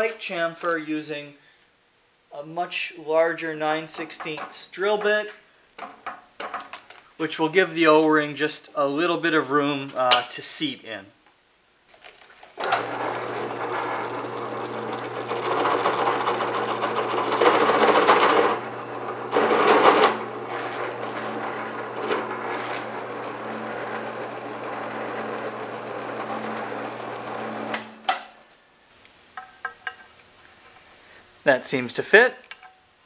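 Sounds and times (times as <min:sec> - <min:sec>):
drill press motor humming: 0:12.6 - 0:28.1
drill bit cutting metal: 0:12.8 - 0:28.0.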